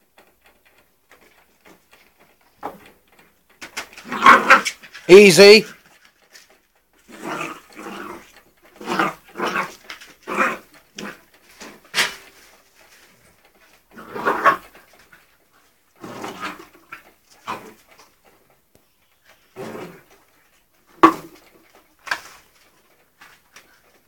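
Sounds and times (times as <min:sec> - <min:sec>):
puppy play growls: 0:03.9 - 0:05.0, 0:06.9 - 0:18.6, 0:19.2 - 0:23.8.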